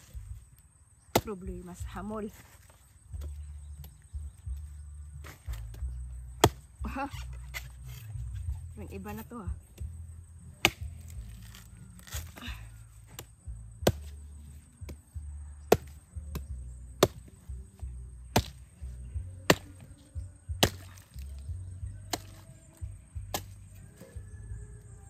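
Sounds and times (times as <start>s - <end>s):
blade chopping coconut husk: 1.1s - 4.0s, 5.2s - 8.1s, 10.6s - 18.8s, 19.4s - 24.2s.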